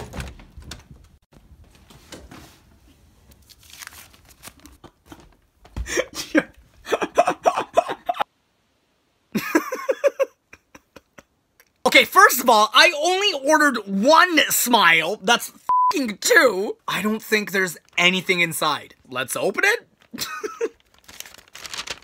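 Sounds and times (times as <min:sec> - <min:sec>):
paper bag crinkling: 0:03.3 - 0:04.8, 0:17.3 - 0:22.0.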